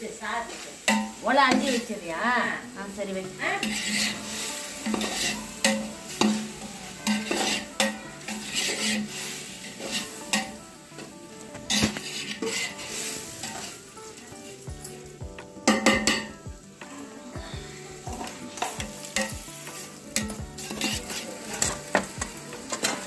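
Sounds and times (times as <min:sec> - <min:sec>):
masala sizzling in hot oil: 0:00.0 - 0:23.0
metal ladle scraping a pot: 0:03.6 - 0:10.6, 0:11.7 - 0:13.8, 0:18.1 - 0:23.0.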